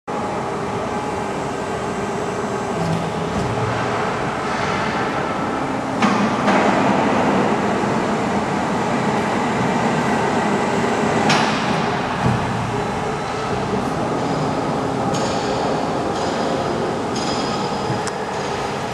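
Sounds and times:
hydraulic press hum and rumble: 0.1s - 18.9s.

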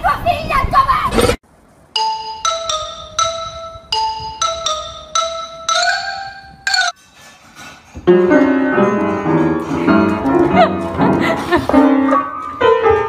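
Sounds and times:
xylophone-like melody: 2.0s - 7.0s.

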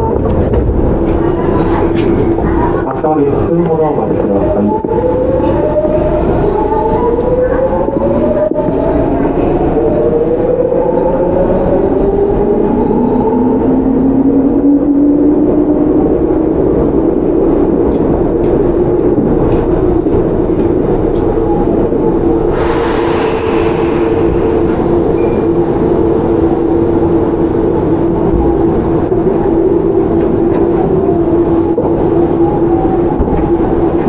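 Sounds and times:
train motor and inverter tone: 0.0s - 34.0s
wheels rolling on rail: 0.0s - 34.0s
hiss: 22.5s - 25.0s.

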